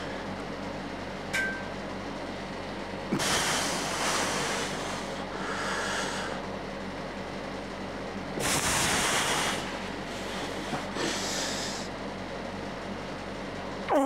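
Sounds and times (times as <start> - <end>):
steady low hum: 0.0 - 14.0
forceful hissing exhales: 3.2 - 6.4, 8.4 - 11.9.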